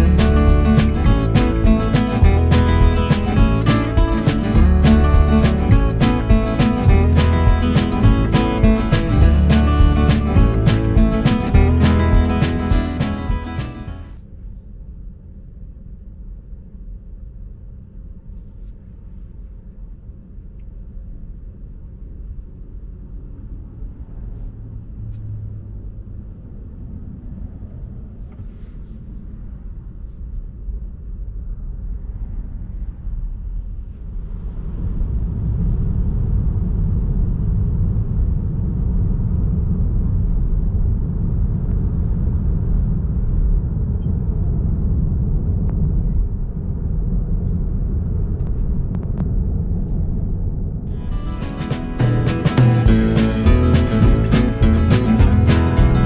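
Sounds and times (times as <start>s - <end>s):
road and tyre rumble: 0.0s - 14.2s, 23.7s - 29.1s.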